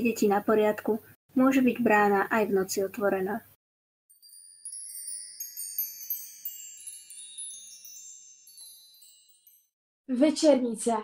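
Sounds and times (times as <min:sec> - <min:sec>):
tinkling bell-like chimes: 0:04.1 - 0:09.8.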